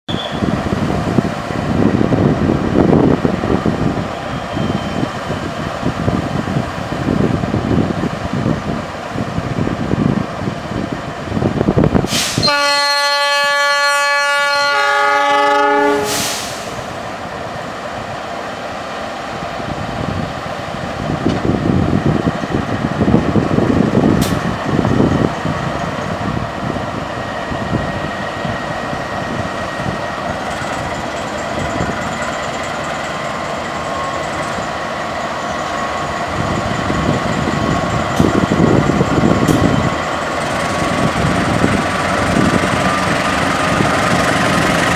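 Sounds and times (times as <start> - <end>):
diesel engines rumbling: 0.1 - 44.9
train on rails: 0.1 - 44.9
train horn chord: 12.4 - 16.4.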